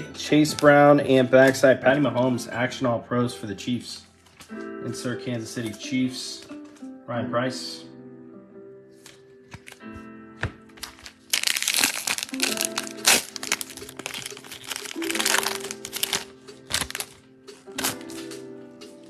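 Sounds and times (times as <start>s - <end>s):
background music: 0.0s - 19.0s
foil wrapper tearing and crinkling: 10.8s - 18.2s.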